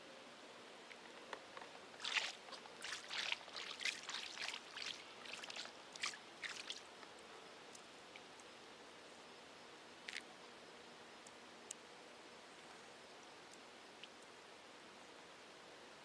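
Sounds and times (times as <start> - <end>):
small water splashes: 2.0 - 7.0.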